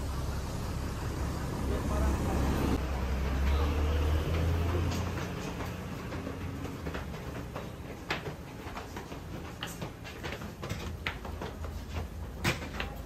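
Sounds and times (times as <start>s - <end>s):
building background hum: 0.0s - 10.2s
footsteps on stairs: 1.9s - 13.0s.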